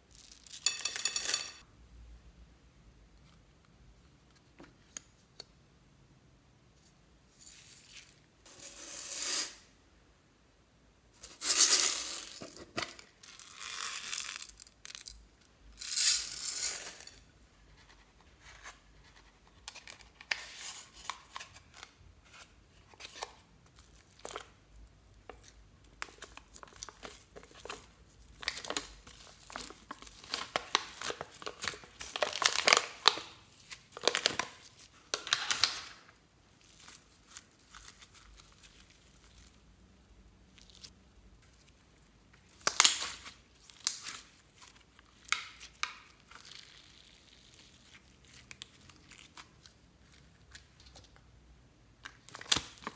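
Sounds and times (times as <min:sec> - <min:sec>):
slime crackling and tearing: 0:42.5 - 0:49.7.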